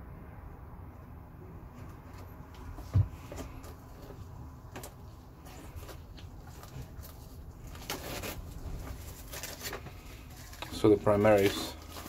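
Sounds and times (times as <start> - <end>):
plastic wrap crinkling: 5.4 - 12.0.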